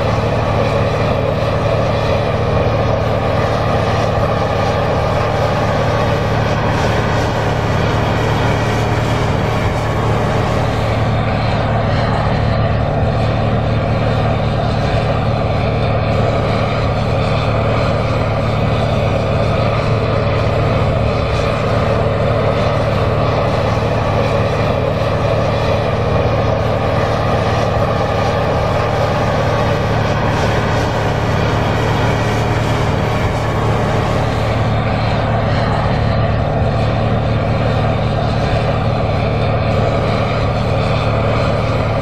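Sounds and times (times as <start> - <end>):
tractor diesel engine running: 0.0 - 42.0.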